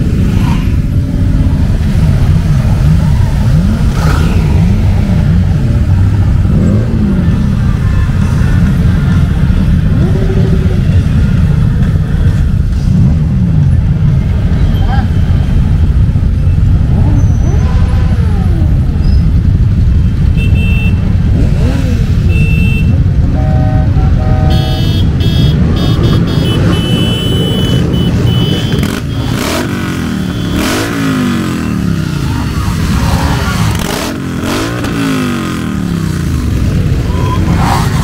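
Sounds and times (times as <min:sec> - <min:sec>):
motorcycle engines rumbling: 0:00.0 - 0:38.0
short horn blasts: 0:22.3 - 0:29.6.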